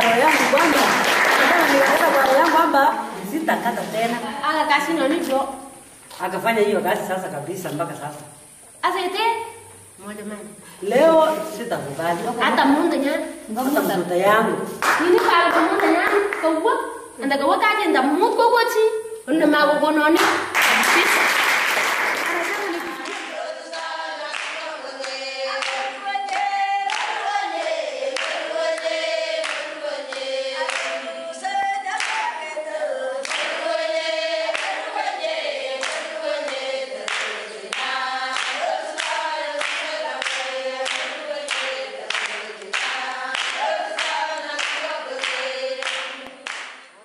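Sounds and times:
hand clapping: 0.0 - 2.7, 14.8 - 16.5, 20.2 - 23.3, 24.3 - 31.0, 31.9 - 32.3, 33.2 - 33.6, 34.5 - 34.8, 35.8 - 46.9
group singing: 22.4 - 47.0.

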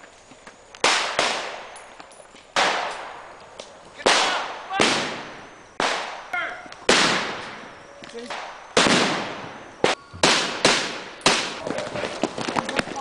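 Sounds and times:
blank rifle gunshots: 0.8 - 1.7, 2.6 - 3.2, 4.0 - 7.7, 8.3 - 11.6.

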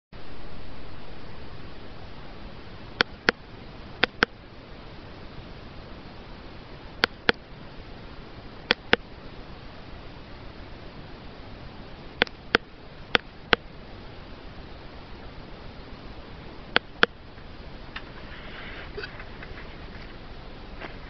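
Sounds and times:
steady hiss: 0.2 - 21.0
mouth clicks: 4.0 - 4.4, 7.0 - 7.4, 8.7 - 9.0, 12.2 - 13.7, 16.7 - 17.2.

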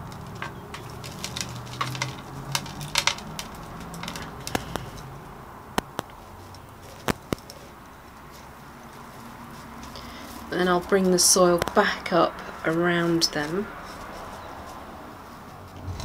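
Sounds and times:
small stones clicking and crunching: 0.0 - 5.1.

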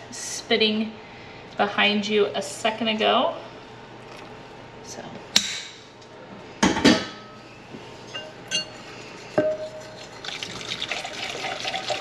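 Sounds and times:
glass clinks: 8.1 - 8.8
water pouring into glass bowl: 9.6 - 12.0.

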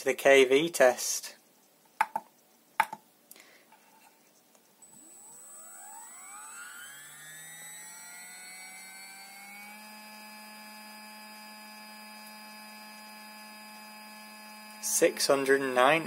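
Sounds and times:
electric motor whine: 4.8 - 16.0.

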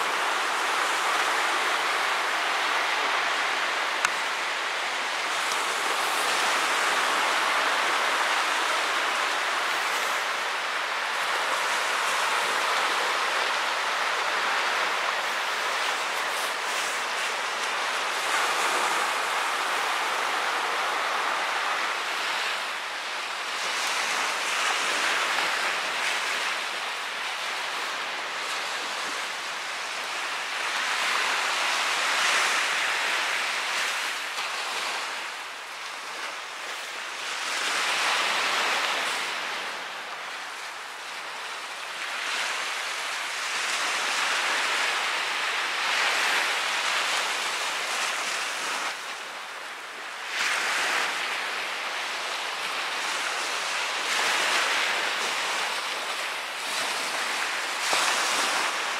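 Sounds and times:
waves breaking on beach: 0.0 - 58.9.

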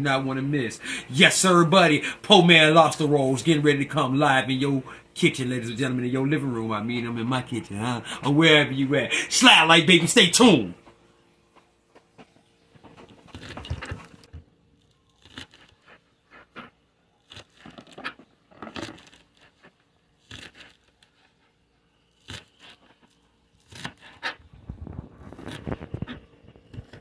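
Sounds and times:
knife chopping green onion: 20.2 - 20.9, 22.2 - 22.8, 23.6 - 24.4.

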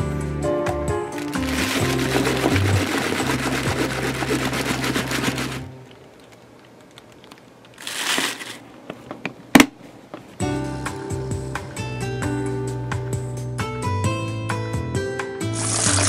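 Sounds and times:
background music: 0.0 - 5.8, 10.4 - 16.0
bubble wrap rustling: 1.1 - 8.7.

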